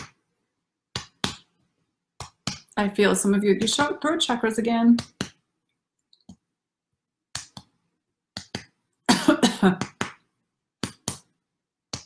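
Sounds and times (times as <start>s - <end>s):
woman coughing: 9.1s - 9.8s.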